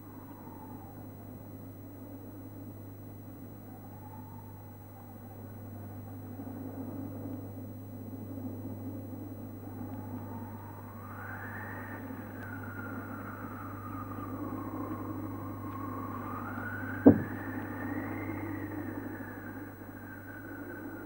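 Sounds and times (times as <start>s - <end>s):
steady low hum: 5.3s - 21.0s
thin wailing tone: 10.3s - 21.0s
sharp heavy thud: 17.1s - 17.4s.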